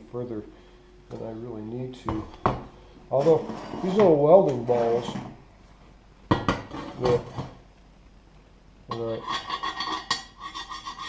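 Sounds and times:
tool scraping metal: 0:03.2 - 0:05.3, 0:06.7 - 0:07.6, 0:08.9 - 0:11.0.

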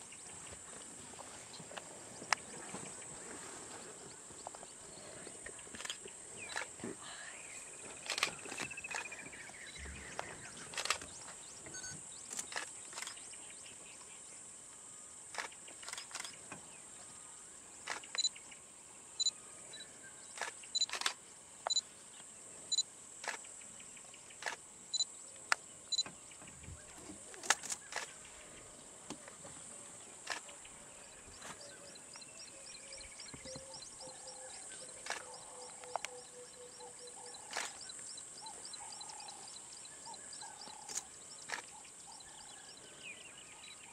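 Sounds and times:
camera shutters clicking: 0:20.4 - 0:21.2, 0:37.5 - 0:37.9.

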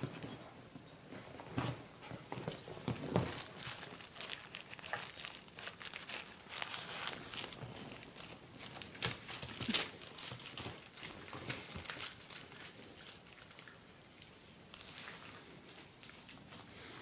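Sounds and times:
wrapper crinkling: 0:03.3 - 0:13.7.

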